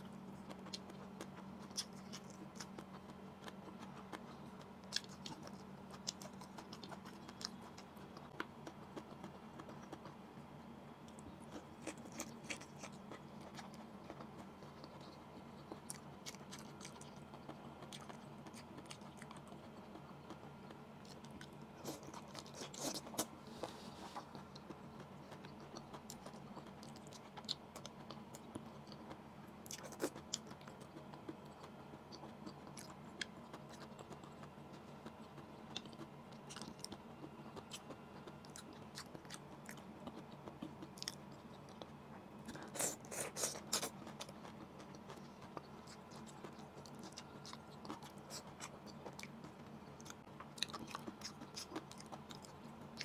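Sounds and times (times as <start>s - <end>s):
faint steady hum: 0.0s - 53.0s
wet chewing: 11.1s - 53.0s.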